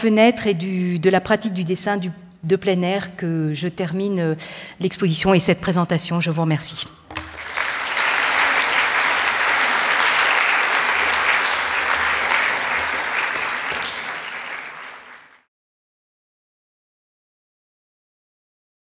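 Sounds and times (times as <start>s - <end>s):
audience applauding: 7.2s - 15.5s.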